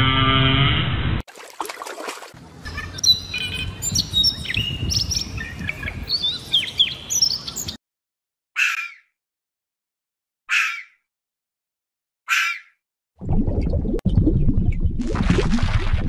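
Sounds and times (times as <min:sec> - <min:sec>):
songbird chirping and singing: 0:02.7 - 0:07.8.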